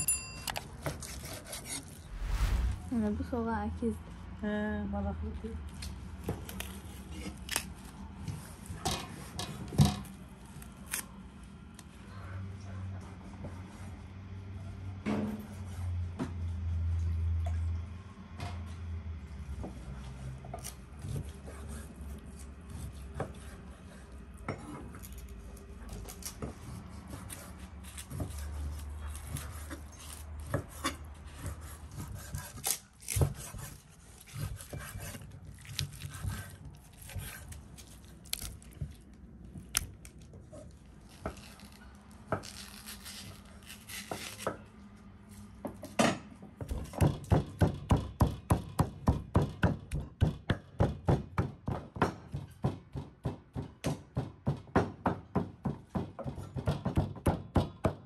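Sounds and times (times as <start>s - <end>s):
knife chopping on wooden board: 30.4s - 37.5s.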